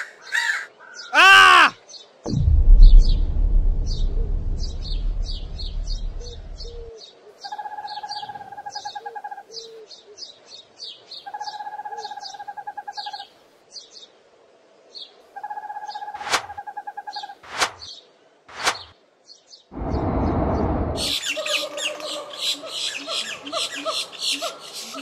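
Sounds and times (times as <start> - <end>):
sharp sudden sound: 2.3 - 6.8, 16.2 - 16.6, 17.5 - 17.9, 18.5 - 18.9, 19.8 - 21.1
low rumble: 2.3 - 6.9, 19.8 - 21.2.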